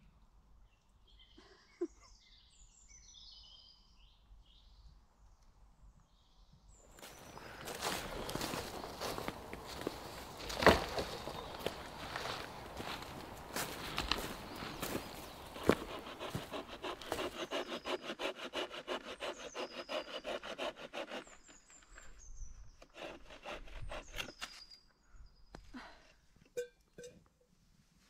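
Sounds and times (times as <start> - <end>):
birds chirping faintly: 0.2 - 27.0
hand saw cutting branch: 7.6 - 21.7, 22.8 - 24.6.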